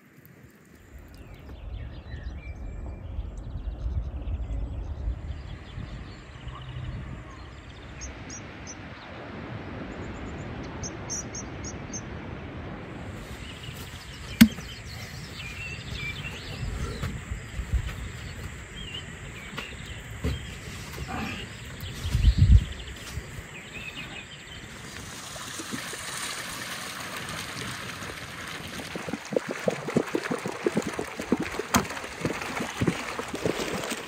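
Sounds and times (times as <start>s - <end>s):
wind rumbling on microphone: 0.3s - 34.0s
small birds chirping: 13.2s - 24.8s.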